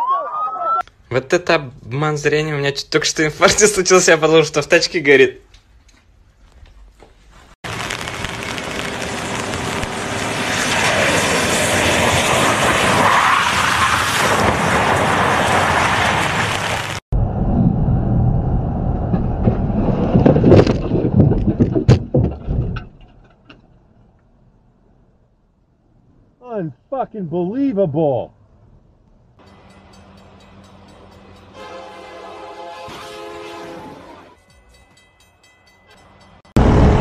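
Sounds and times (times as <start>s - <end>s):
loud knocks and bangs: 19.1s - 23.4s.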